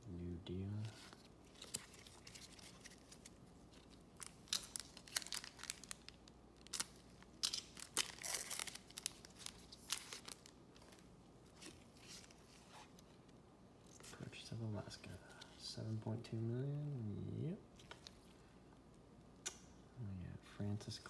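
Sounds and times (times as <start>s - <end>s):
foil wrapper tearing and crinkling: 1.5s - 10.6s.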